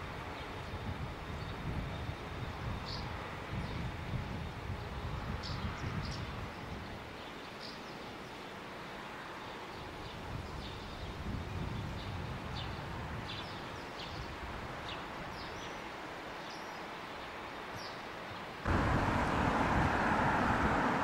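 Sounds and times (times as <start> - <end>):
small birds chirping: 7.2 - 11.2
outdoor hiss: 13.7 - 21.0
railcar low rumble: 18.7 - 21.0.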